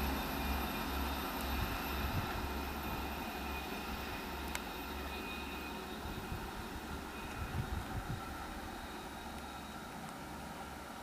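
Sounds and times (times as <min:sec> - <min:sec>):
diesel railcar engine rumble: 0:00.0 - 0:11.0.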